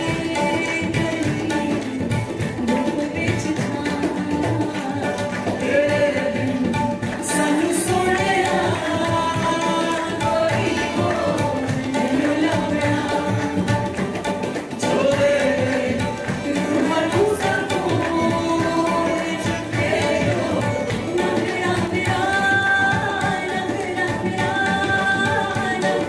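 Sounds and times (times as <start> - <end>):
harmonium: 0.0 - 26.0
tabla and box drum beat: 0.0 - 26.0
person singing: 14.8 - 26.0.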